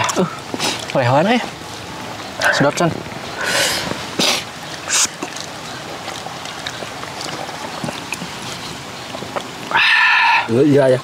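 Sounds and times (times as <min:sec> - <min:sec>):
short sharp hissing: 0:03.4 - 0:05.2
soft chewing with clicks: 0:04.6 - 0:09.8.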